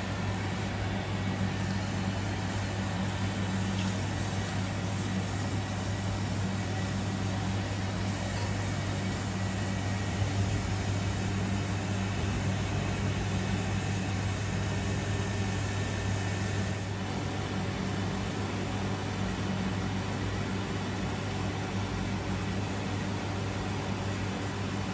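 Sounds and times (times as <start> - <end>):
extraction fan hum: 0.0 - 24.9.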